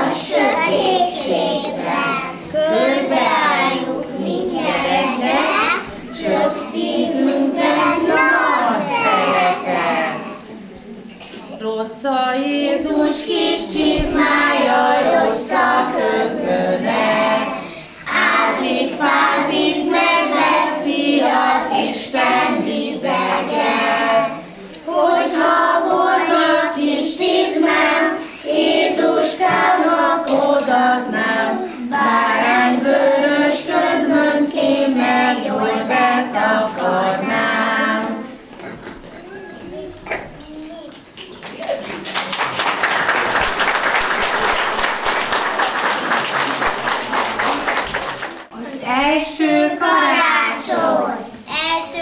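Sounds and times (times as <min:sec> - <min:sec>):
children singing together: 0:00.0 - 0:10.6, 0:12.4 - 0:40.4, 0:49.2 - 0:52.0.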